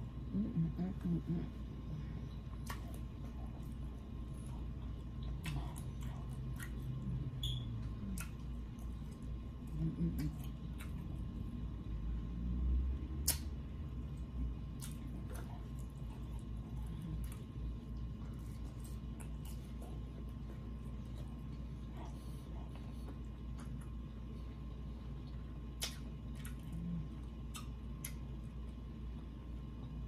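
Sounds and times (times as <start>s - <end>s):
steady low hum: 0.0s - 30.0s
person chewing food: 2.2s - 11.8s, 13.2s - 28.8s
wet mouth clicks and smacks: 2.6s - 3.1s, 5.2s - 8.9s, 13.2s - 13.6s, 14.7s - 16.0s, 25.7s - 26.7s, 27.4s - 28.2s.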